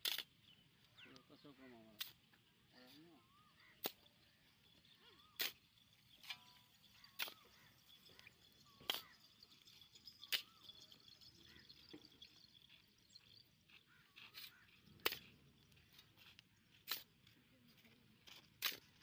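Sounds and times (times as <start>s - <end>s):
shovel chopping into hard earth: 7.1s - 7.4s, 16.8s - 17.2s.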